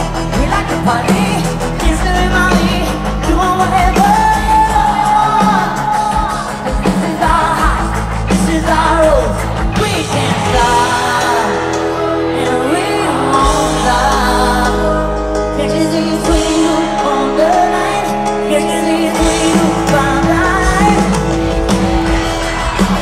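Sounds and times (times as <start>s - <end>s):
live pop-rock band: 0.0s - 23.0s
woman singing: 0.4s - 21.8s.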